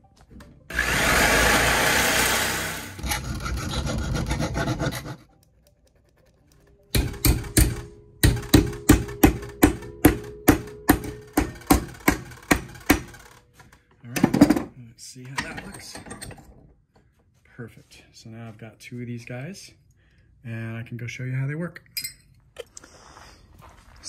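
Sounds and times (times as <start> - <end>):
reciprocating saw cutting steel: 0.7 - 5.3
hammer striking steel: 6.9 - 13.2.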